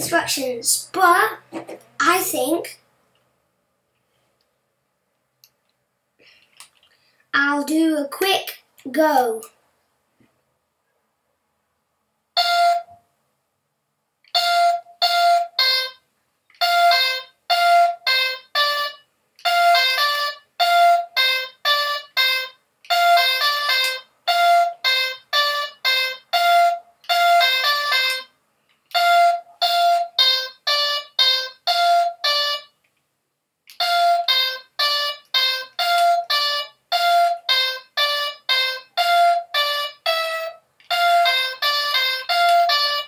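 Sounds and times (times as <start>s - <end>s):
electronic toy beeping tune: 16.6s - 28.3s, 28.9s - 32.7s, 33.7s - 43.0s.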